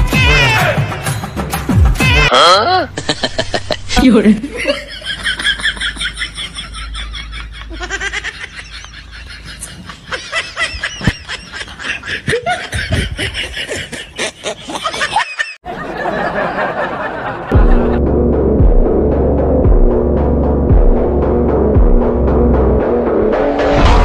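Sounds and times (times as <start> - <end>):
people giggling: 2.8 - 18.0.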